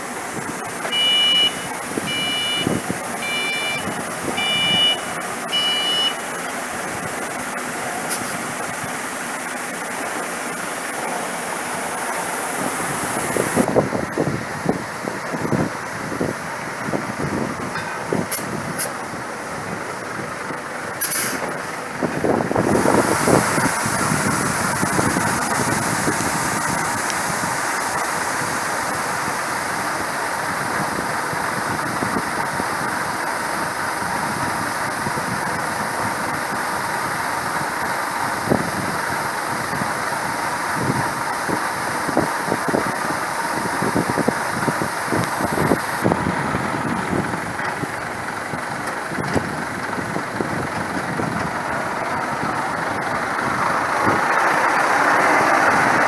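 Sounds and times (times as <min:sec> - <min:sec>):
truck engine running: 0:00.0 - 0:56.0
grain pouring into truck: 0:21.0 - 0:56.0.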